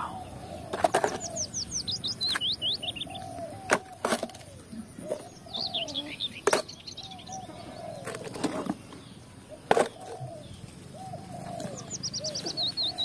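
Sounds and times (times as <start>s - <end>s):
birds chirping: 0.0s - 13.0s
low bird call: 0.0s - 13.0s.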